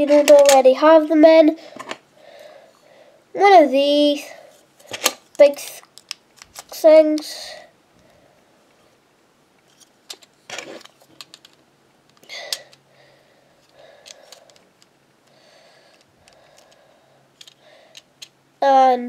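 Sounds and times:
plastic pieces clicking: 0:00.0 - 0:00.6, 0:04.9 - 0:07.3, 0:09.7 - 0:12.8, 0:13.7 - 0:14.9, 0:15.9 - 0:16.8, 0:17.4 - 0:18.3.

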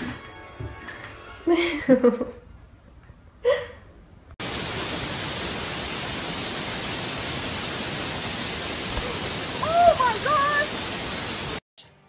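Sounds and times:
steady static hiss: 0:04.4 - 0:11.6.

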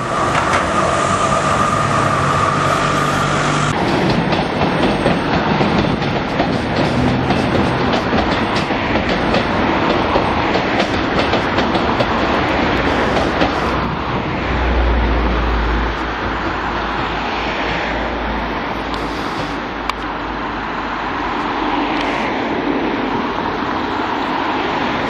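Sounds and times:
train rumble: 0:00.0 - 0:25.0
train wheels clattering: 0:00.1 - 0:13.9.

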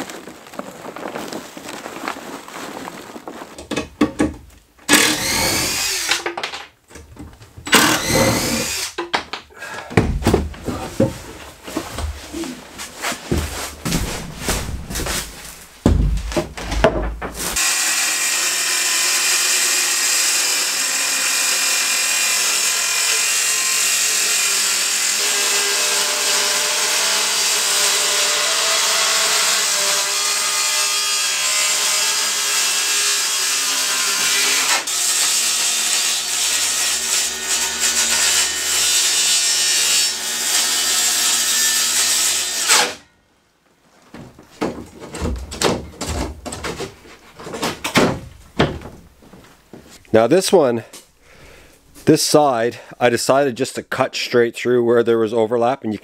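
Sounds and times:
power saw cutting plywood: 0:04.8 - 0:06.3, 0:07.6 - 0:09.0, 0:17.3 - 0:43.0.

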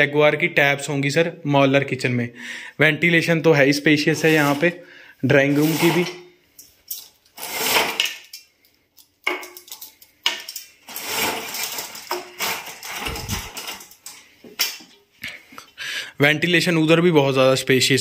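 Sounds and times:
bead chain rattling in blind: 0:09.6 - 0:14.2.

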